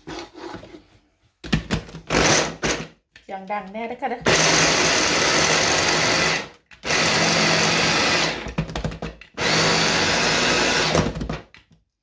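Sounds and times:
electric chopper motor running: 4.3s - 8.4s, 9.4s - 11.1s.

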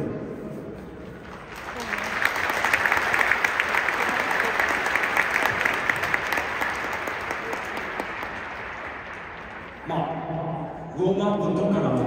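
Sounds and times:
stadium crowd applauding: 1.2s - 10.3s.

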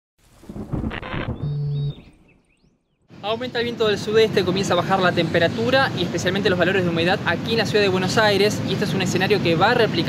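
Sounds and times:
rumbling whoosh: 0.2s - 2.5s
low synthetic tone: 0.8s - 2.8s.

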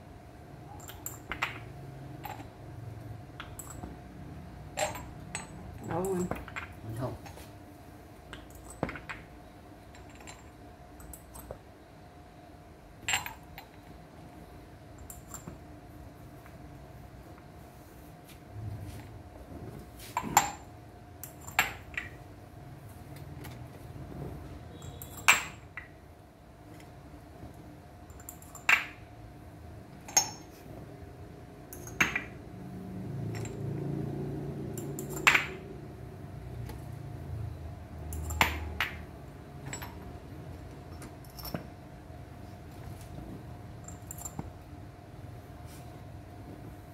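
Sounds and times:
faint steady hum: 0.0s - 46.9s
glass cups clinking: 4.8s - 6.8s, 24.7s - 25.9s, 31.7s - 32.4s.

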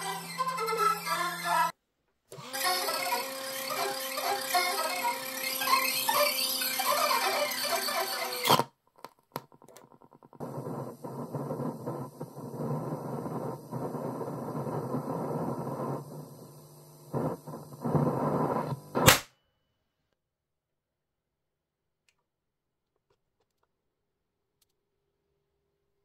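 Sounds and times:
distorted playback with hiss: 9.9s - 19.2s
sharp electrical pop: 18.7s - 19.3s.

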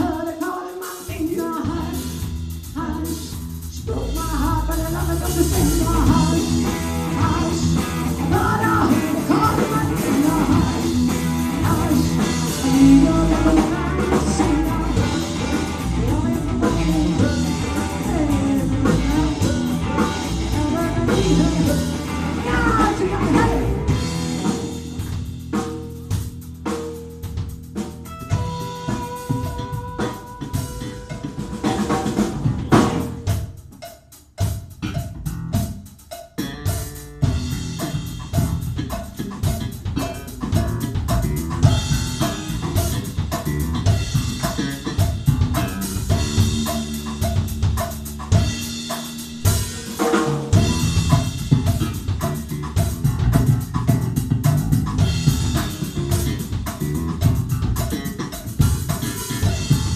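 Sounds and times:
woman singing lead: 0.0s - 24.1s, 28.6s - 32.9s
drum hits and rimshots: 0.0s - 59.9s
live rock band playing: 0.0s - 59.9s.

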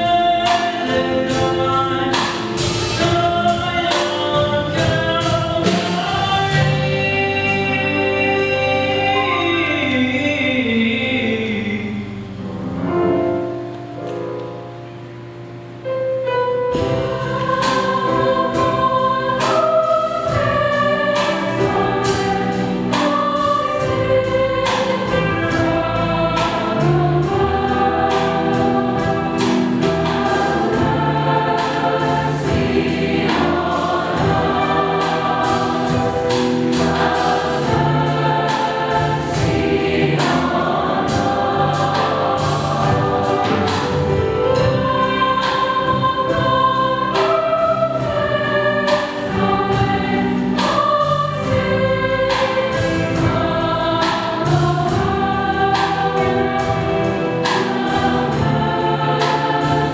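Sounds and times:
choir singing: 0.0s - 13.7s, 16.6s - 59.9s
piano accompaniment: 0.0s - 59.9s
steady rhythmic beat: 16.7s - 59.9s.

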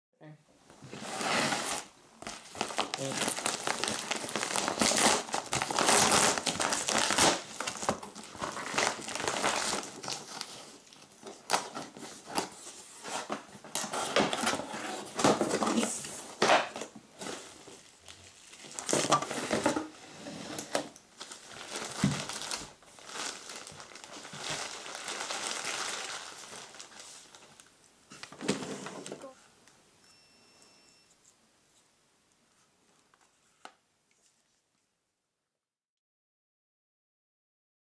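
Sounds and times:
plastic wrap rustling: 0.8s - 29.4s
foil mailer crinkling: 1.6s - 19.8s, 20.6s - 28.6s.

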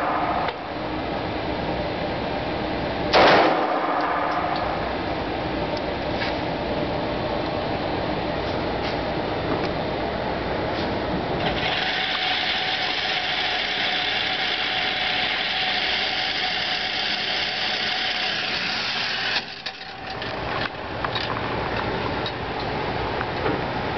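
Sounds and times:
target carrier motor running: 11.2s - 23.3s.

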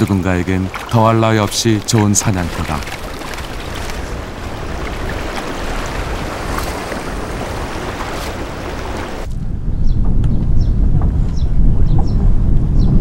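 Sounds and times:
rushing sea water: 0.0s - 9.3s
wind: 0.0s - 13.0s.

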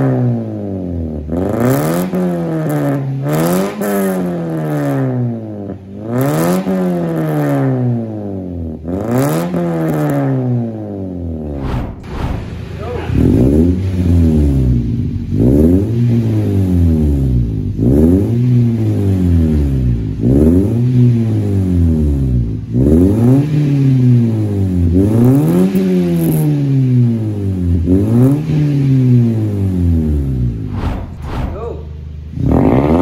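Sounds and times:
car engine revving: 0.0s - 33.0s.

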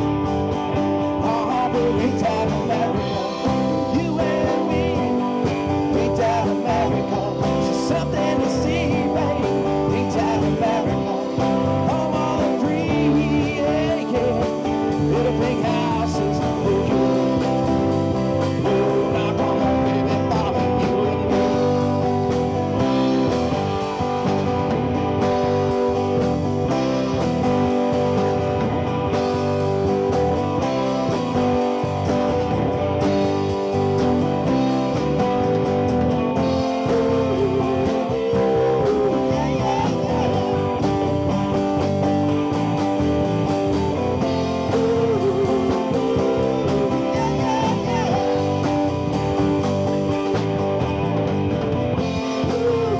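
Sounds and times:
drum kit and cymbals: 0.0s - 52.9s
guitars playing: 0.0s - 52.9s
person singing lead: 36.6s - 40.9s, 44.4s - 48.7s.

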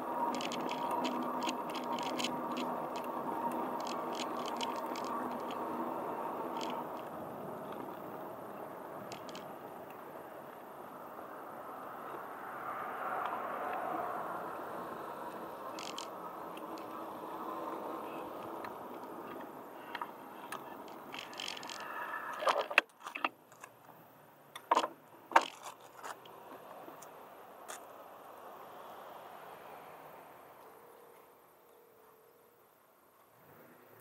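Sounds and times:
tyres rolling on asphalt: 0.0s - 30.5s
metallic rattles and clicks: 0.3s - 5.8s, 6.4s - 8.0s, 9.0s - 9.5s, 15.7s - 17.0s, 18.6s - 23.8s.

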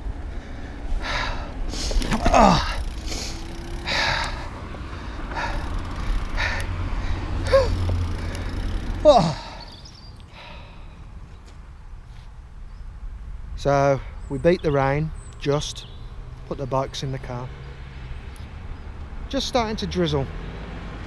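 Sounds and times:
bicycle tyres on road: 0.0s - 13.4s
person breathing heavily: 0.2s - 11.2s
person sighing: 1.0s - 4.5s, 7.4s - 7.8s, 9.0s - 9.7s.

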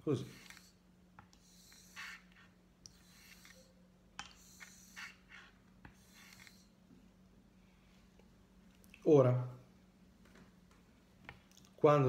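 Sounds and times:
razor swishing across stone: 1.4s - 6.8s.

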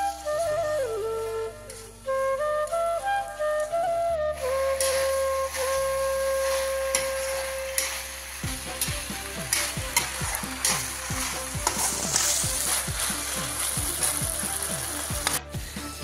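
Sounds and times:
held flute note: 0.0s - 16.0s
spatula scraping a wok: 4.8s - 15.4s
food sizzling in a wok: 4.8s - 15.9s.

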